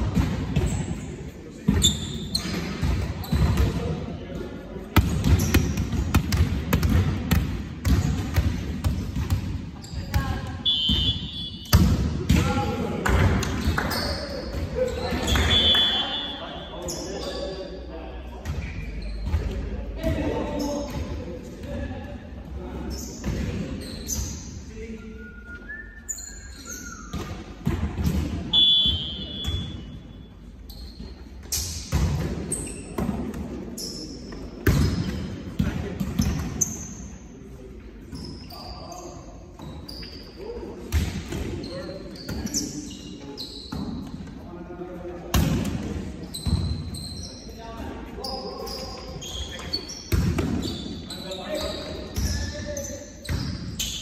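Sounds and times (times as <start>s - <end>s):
players' voices: 0.0s - 30.0s, 32.0s - 53.7s
shoe squeak: 0.6s - 3.6s, 9.8s - 11.8s, 13.8s - 17.6s, 18.6s - 19.7s, 22.9s - 24.6s, 25.3s - 27.4s, 28.5s - 31.8s, 32.5s - 33.0s, 33.8s - 35.3s, 38.1s - 40.5s, 41.6s - 44.2s, 46.2s - 54.0s
volleyball strikes and thuds: 4.9s - 13.8s.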